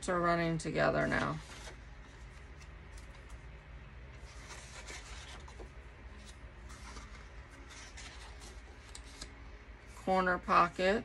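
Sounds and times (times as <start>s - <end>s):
cardstock sheets rustling: 1.0s - 3.4s, 4.2s - 9.3s.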